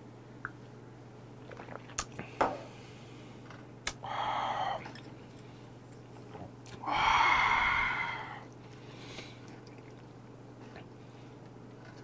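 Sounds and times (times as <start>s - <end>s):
low steady hum: 0.0s - 12.0s
man exhaling breathily: 6.8s - 9.2s.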